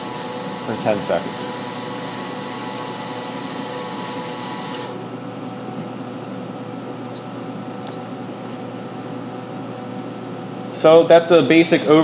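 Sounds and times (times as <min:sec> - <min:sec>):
ultrasonic cleaner high hiss: 0:00.0 - 0:05.0
machine hum: 0:00.0 - 0:10.9.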